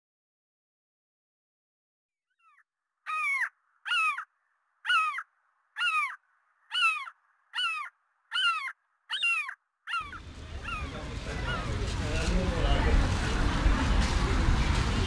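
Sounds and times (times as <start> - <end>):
gull calling: 2.4 - 11.9.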